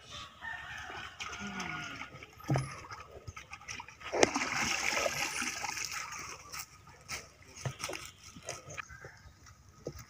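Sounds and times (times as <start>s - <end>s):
water splashing in plastic bucket: 0.8s - 6.5s.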